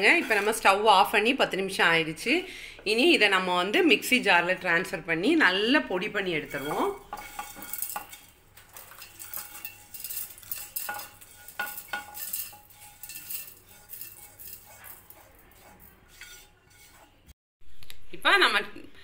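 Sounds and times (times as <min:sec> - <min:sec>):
spatula scraping a pan: 0:00.0 - 0:01.0, 0:06.0 - 0:17.4
spices clinking against metal: 0:06.3 - 0:17.2.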